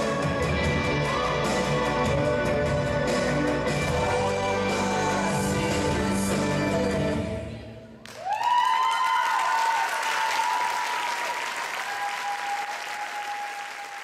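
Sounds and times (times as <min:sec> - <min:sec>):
audience applause: 0:08.1 - 0:14.0
high held cheers: 0:08.1 - 0:14.0.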